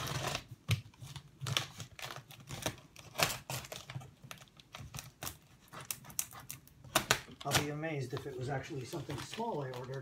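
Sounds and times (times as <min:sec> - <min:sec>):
packing tape peeling off cardboard: 0:00.0 - 0:07.8.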